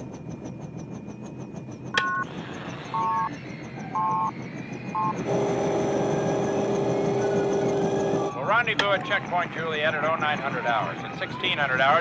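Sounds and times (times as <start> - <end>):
helicopter cabin noise: 0.0 - 12.0
steady electronic drone: 0.0 - 12.0
two-note electronic beeps: 2.0 - 7.7.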